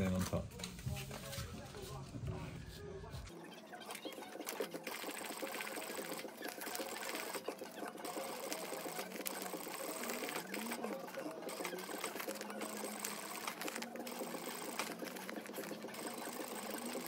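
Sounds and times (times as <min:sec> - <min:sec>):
sewing machine stitching: 0:03.9 - 0:17.0.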